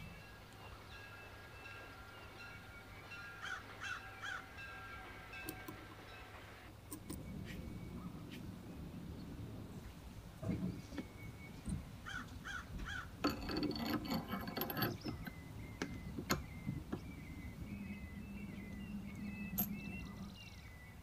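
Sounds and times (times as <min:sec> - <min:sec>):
small steel parts clinking: 0:13.2 - 0:17.1, 0:19.1 - 0:20.0.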